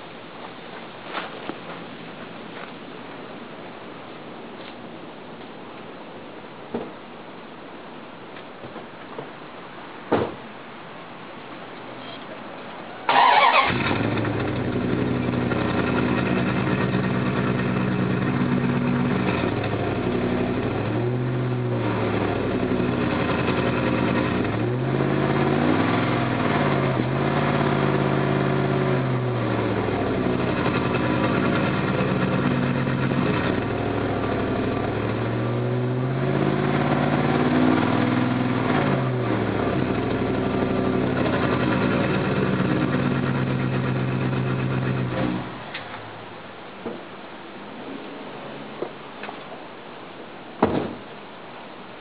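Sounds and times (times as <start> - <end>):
car engine starting and idling: 12.9 - 46.9
engine revving: 13.1 - 45.6.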